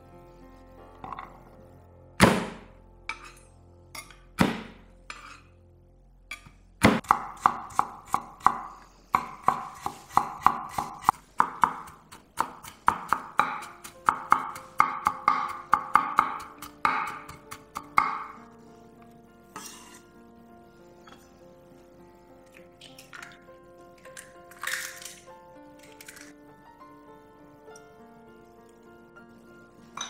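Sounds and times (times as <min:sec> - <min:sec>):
soft background music: 0:00.0 - 0:30.0
knife chopping on wooden board: 0:06.8 - 0:18.4.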